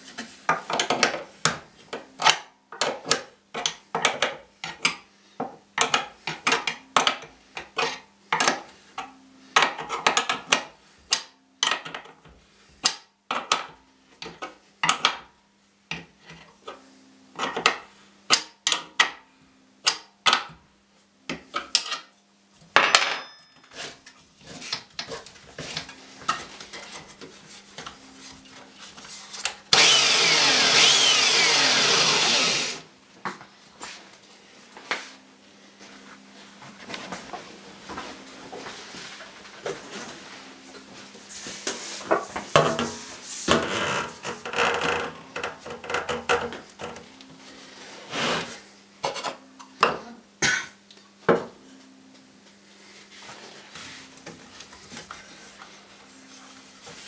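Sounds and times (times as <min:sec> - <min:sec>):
belt sander running: 0:29.7 - 0:32.8.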